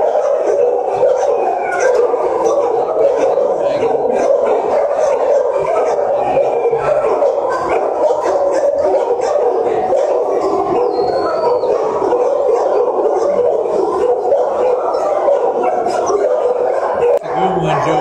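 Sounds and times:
dogs barking and howling: 0.0 - 18.0.

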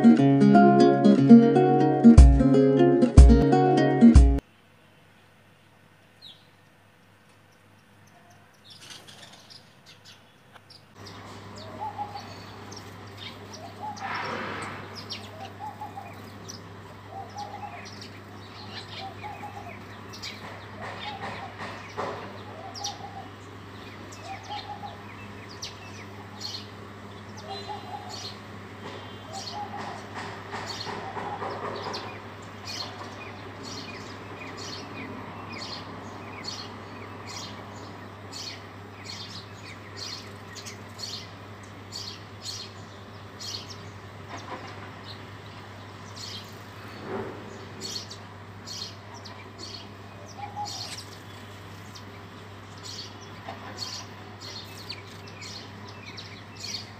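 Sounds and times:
sparrows chirping: 6.1 - 56.9
lower bird call: 27.3 - 30.2.

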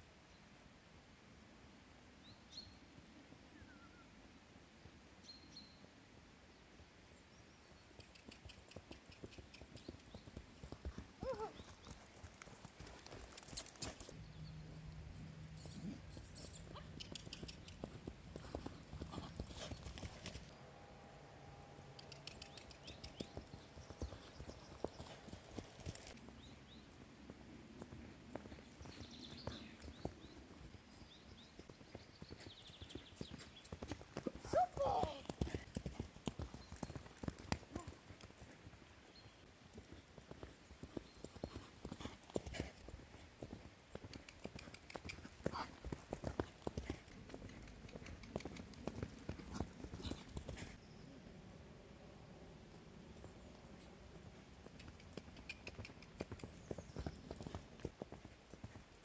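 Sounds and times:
faint bird chirps: 3.5 - 4.2, 14.2 - 17.9
horse hoofbeats on grass: 15.8 - 20.5, 22.4 - 50.8.

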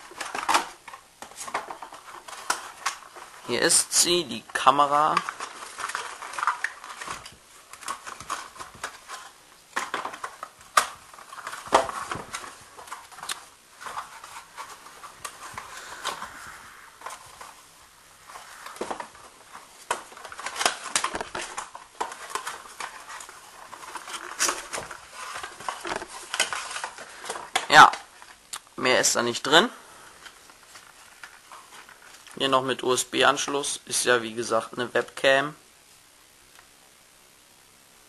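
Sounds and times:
clicks and rustles: 0.0 - 17.6, 18.2 - 28.7, 30.2 - 32.4.

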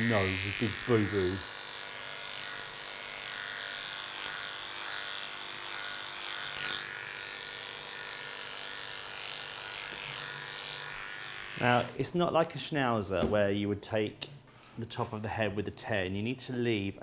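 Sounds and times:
electric dog clippers running: 0.0 - 12.0.

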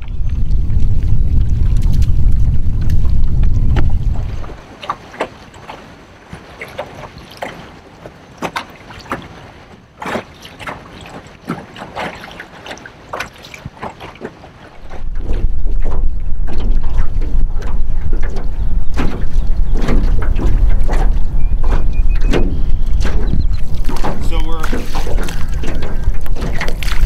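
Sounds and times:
wind rumbling on microphone: 0.0 - 4.7, 14.7 - 27.0
water splashing around boat: 0.0 - 27.0.

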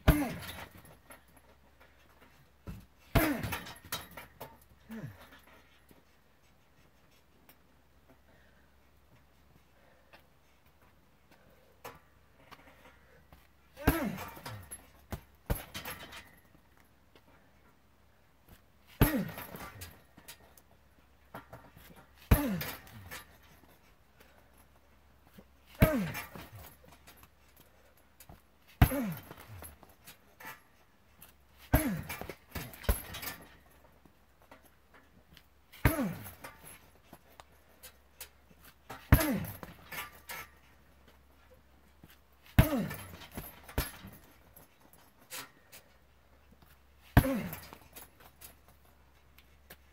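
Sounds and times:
punching bag thuds: 0.0 - 0.8, 13.8 - 16.0, 19.0 - 19.9, 25.8 - 26.7, 28.8 - 29.7, 38.9 - 40.0, 42.6 - 44.2, 47.2 - 47.8
metal hardware rattling: 0.0 - 5.7, 13.8 - 16.8, 18.9 - 20.6, 21.2 - 41.2, 42.0 - 45.9, 47.0 - 49.0.

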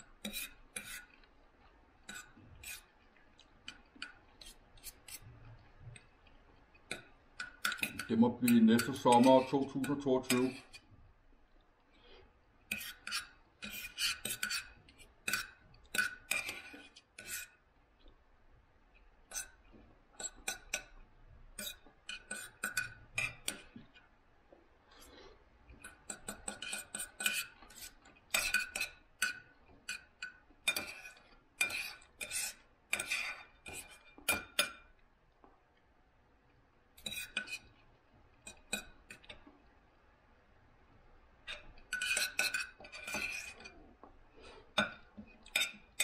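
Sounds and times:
cutlery clinking on a plate: 6.9 - 10.9, 12.7 - 17.6, 20.2 - 21.0, 21.6 - 24.0, 25.8 - 34.9, 37.0 - 37.7, 38.4 - 39.5, 41.5 - 43.8, 44.7 - 46.0.

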